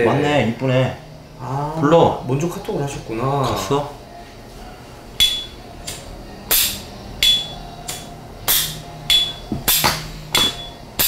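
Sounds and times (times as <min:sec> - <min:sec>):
high metallic ring: 0:05.2 - 0:05.7, 0:06.5 - 0:11.0.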